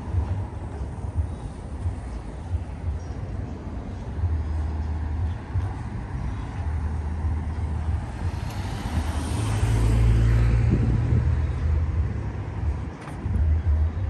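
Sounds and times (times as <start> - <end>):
steady low traffic rumble: 0.0 - 14.0
car passing: 4.2 - 13.4.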